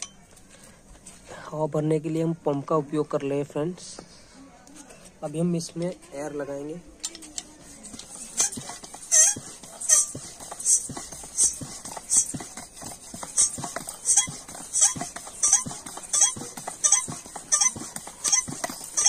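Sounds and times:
air pump squeaky hiss: 7.1s - 19.0s.

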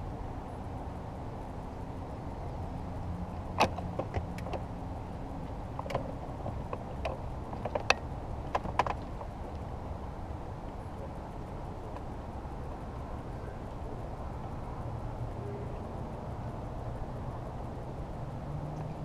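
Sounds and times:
steady low rumble: 0.0s - 19.0s
light clicks and knocks: 3.5s - 4.8s, 5.4s - 9.7s.

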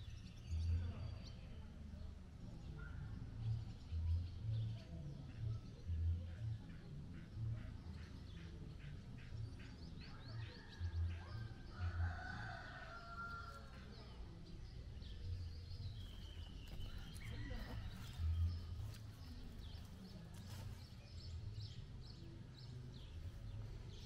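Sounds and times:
rooster crowing: 11.7s - 13.7s, 16.9s - 18.3s.

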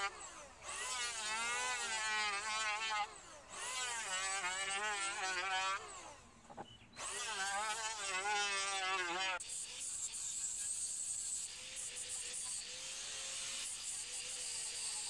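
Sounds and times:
electric hand planer on wood: 0.0s - 6.2s, 7.0s - 15.0s.

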